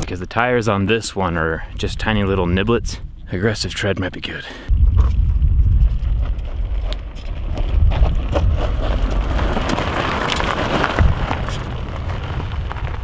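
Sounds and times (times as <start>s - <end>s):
steady low rumble: 0.8s - 4.0s, 4.7s - 13.0s
tyres crunching on gravel: 5.1s - 13.0s
stones clicking under wheels: 5.5s - 13.0s.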